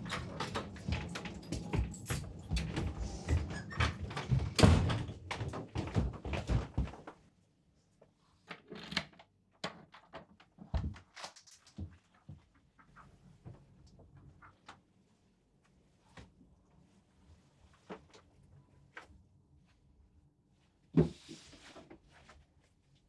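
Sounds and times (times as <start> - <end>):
door knocks and clatter: 0.0 - 6.9.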